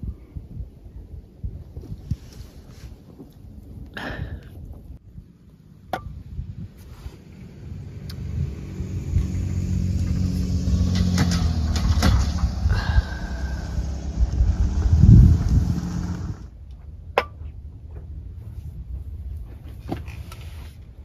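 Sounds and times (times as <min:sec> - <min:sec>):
car engine rumbling: 0:04.8 - 0:16.6.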